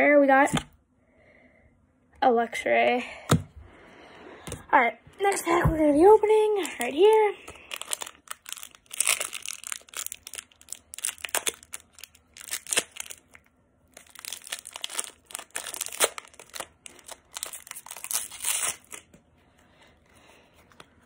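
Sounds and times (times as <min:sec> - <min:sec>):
foil wrapper tearing and crinkling: 0:06.6 - 0:19.1.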